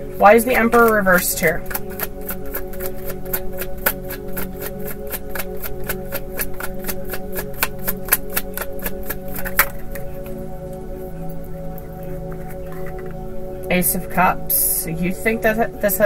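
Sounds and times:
soft background music: 0.0 - 16.0
cards shuffling and clicking: 1.6 - 10.1.

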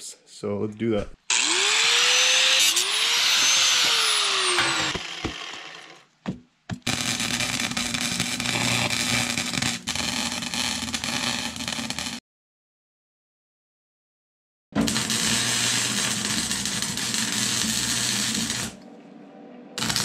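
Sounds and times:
angle grinder on steel: 1.3 - 6.0, 6.9 - 12.2, 14.8 - 18.8, 19.8 - 20.0
arc weld crackling: 1.3 - 6.0, 6.8 - 12.2, 14.8 - 18.8, 19.8 - 20.0.

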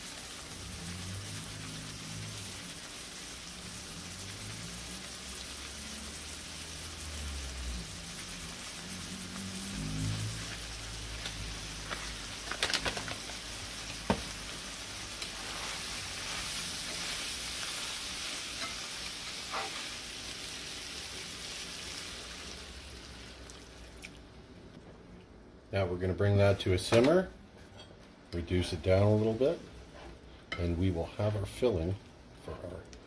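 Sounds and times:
beef sizzling in a frying pan: 0.0 - 24.3.

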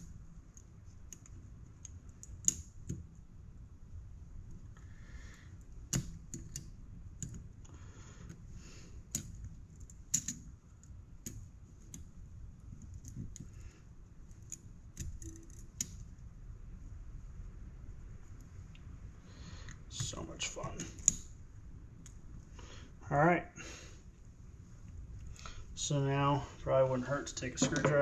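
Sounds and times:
sharp metal clicks: 9.1 - 12.1, 20.0 - 21.3.

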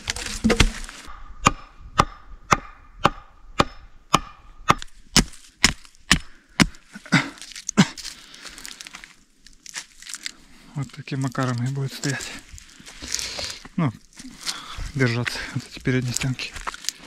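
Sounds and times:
hatchet chopping wood: 0.1 - 6.8.

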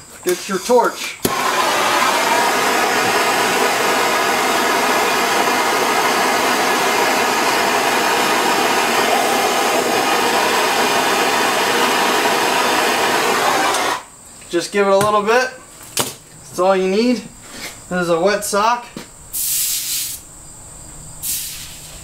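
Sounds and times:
gas torch hissing: 0.3 - 14.1, 19.3 - 20.2, 21.2 - 22.0.

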